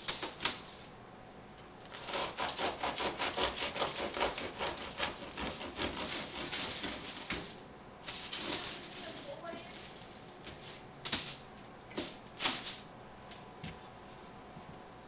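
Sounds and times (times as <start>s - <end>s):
knife sawing through bread crust: 1.9s - 7.4s.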